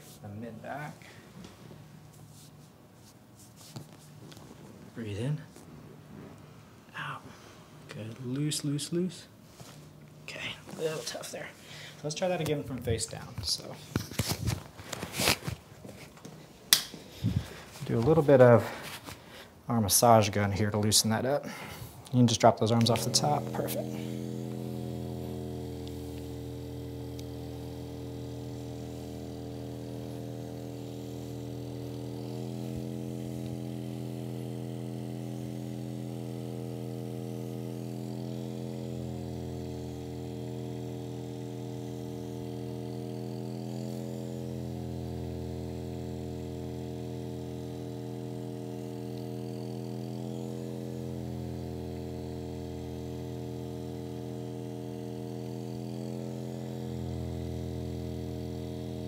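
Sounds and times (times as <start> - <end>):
massage gun motor buzz: 20.0 - 59.0.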